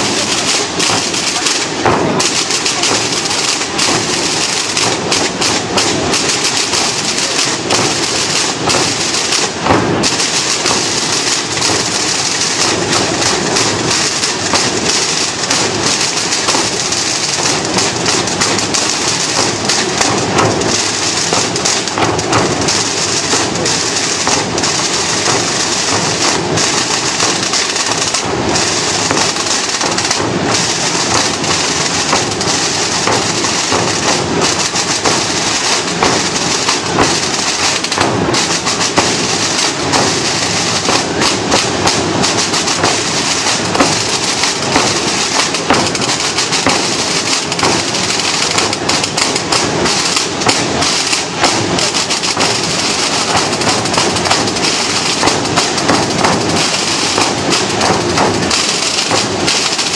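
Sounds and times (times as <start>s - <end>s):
bass drum beats: 0.0s - 59.9s
massed snare drums rattling: 0.0s - 59.9s.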